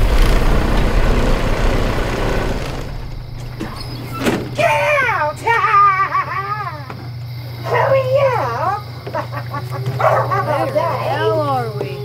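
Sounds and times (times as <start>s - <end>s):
bus engine rumbling: 0.0s - 6.2s
high wavering whine: 0.0s - 6.4s
bus door clunk: 1.6s - 4.6s.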